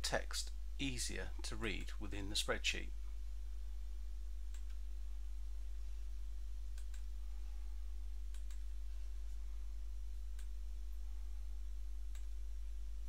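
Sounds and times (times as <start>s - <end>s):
low hum: 0.0s - 13.0s
computer mouse clicks: 6.7s - 7.1s, 8.3s - 8.7s, 12.1s - 12.4s.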